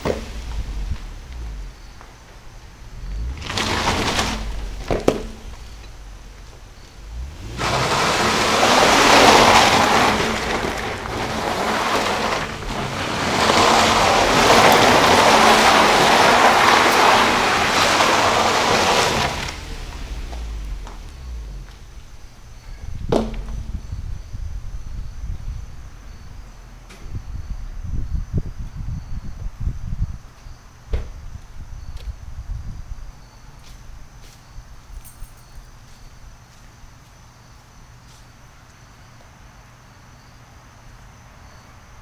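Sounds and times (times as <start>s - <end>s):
dirt spraying hiss: 0.0s - 22.0s
tyres spinning on wet dirt: 0.0s - 24.0s.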